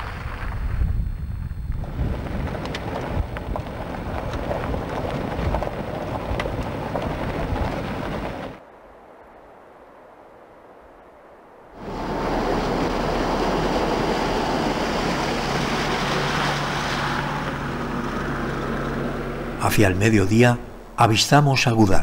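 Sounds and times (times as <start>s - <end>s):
tyres crunching on gravel: 0.0s - 8.6s
wind rumble on microphone: 0.0s - 10.5s.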